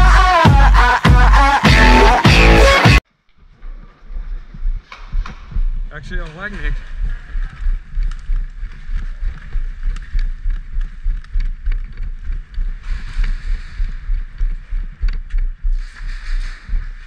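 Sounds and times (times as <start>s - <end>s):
camera jostling rumble and thumps: 3.4s - 17.0s.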